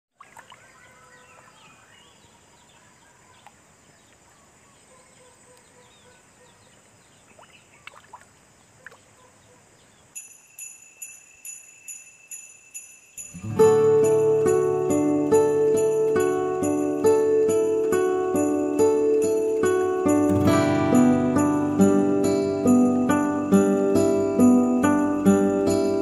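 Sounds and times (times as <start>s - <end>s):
sleigh bells jingling in music: 10.2s - 26.0s.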